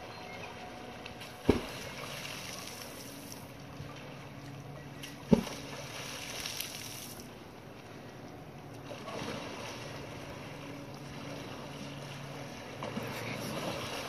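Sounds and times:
tail slapping water: 0.0s - 14.0s
wind: 0.0s - 14.0s.

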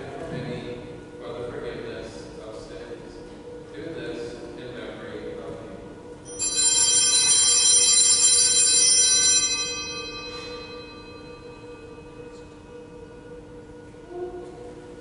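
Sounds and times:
altar bells jingling: 6.2s - 13.4s.

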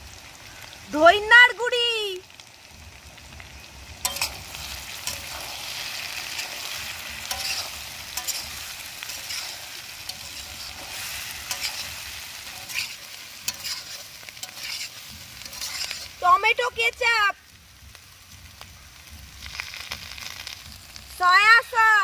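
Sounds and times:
food sizzling in a pan: 0.0s - 22.0s
spoon scraping and knocking pan: 4.0s - 16.2s.

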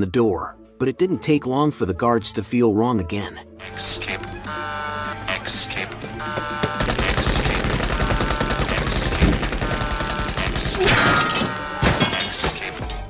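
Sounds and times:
machine gun rapid fire: 6.5s - 11.0s.

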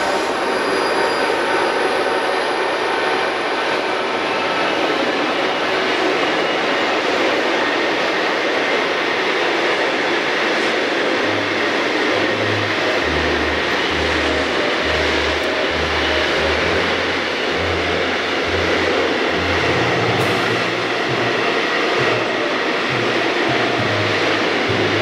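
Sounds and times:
freight train wheels rattling: 0.0s - 25.0s
low hum: 11.2s - 25.0s.

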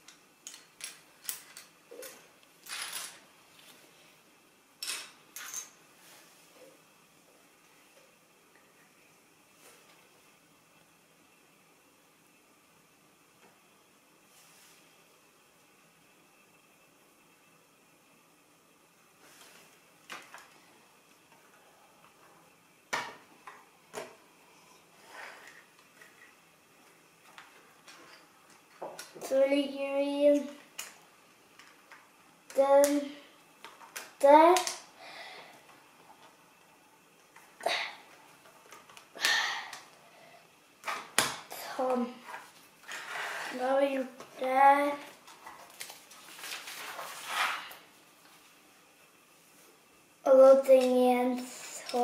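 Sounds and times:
plastic bricks clicking together: 0.1s - 2.1s
rustle of plastic pieces: 45.1s - 48.6s.

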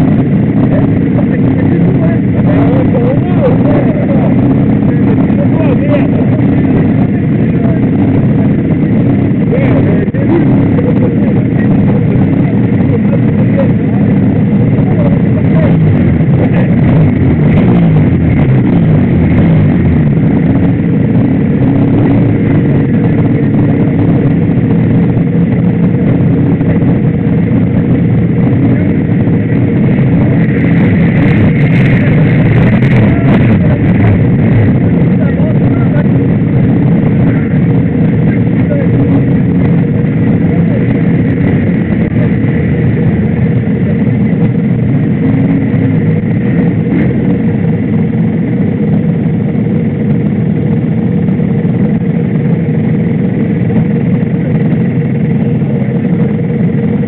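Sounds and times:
other motorcycles running: 0.0s - 57.0s.

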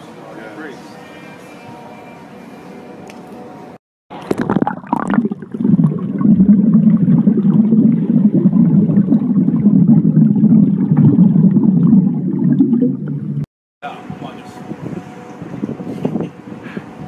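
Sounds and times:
water splashing: 4.1s - 13.5s.

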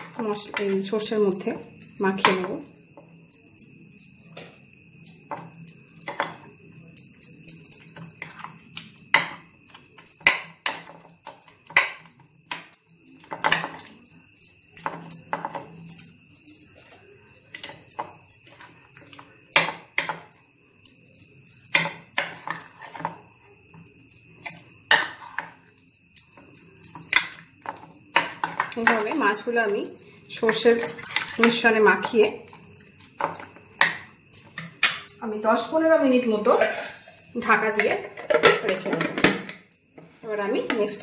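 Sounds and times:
metal spoon scraping ceramic bowl: 36.6s - 37.2s.

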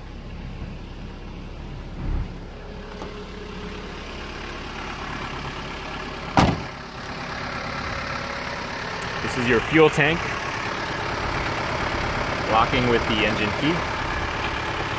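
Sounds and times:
diesel engine idling: 0.0s - 14.9s
door shut with bang: 6.4s - 6.8s
low thump: 6.4s - 6.8s.

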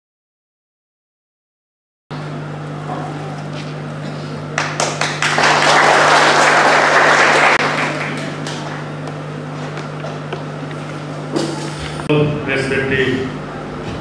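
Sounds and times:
audience applauding: 4.5s - 9.0s.

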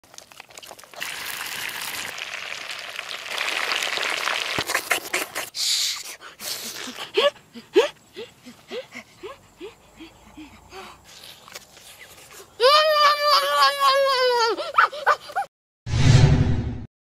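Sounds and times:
boy laughing: 12.6s - 15.5s.

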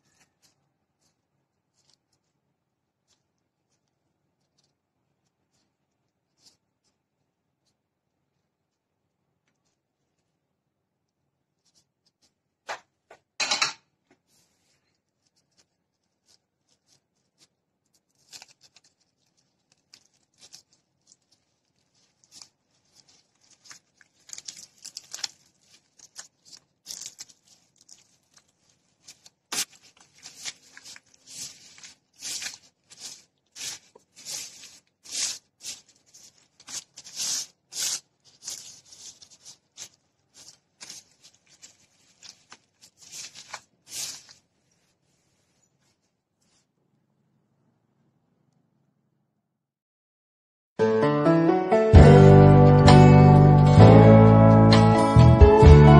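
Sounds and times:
rustling scrapes of sushi rolling: 14.2s - 46.7s.

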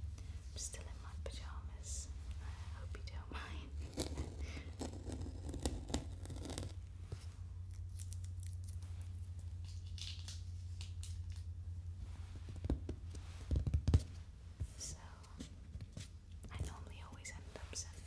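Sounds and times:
faint scratches: 0.7s - 7.3s.

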